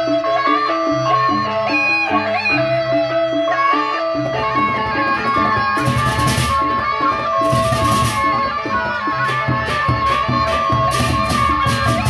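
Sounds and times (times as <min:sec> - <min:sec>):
drum strokes: 0:04.2 - 0:12.0.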